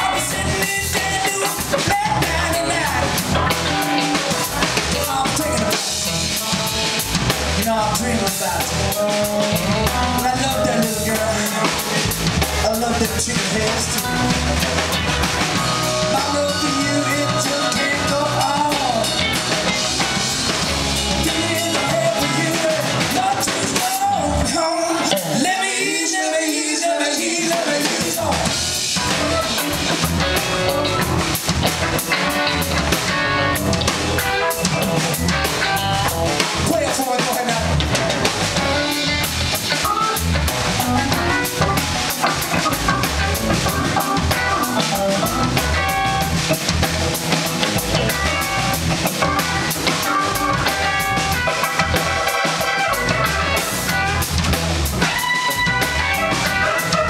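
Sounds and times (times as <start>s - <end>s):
funk band playing: 0.0s - 57.0s.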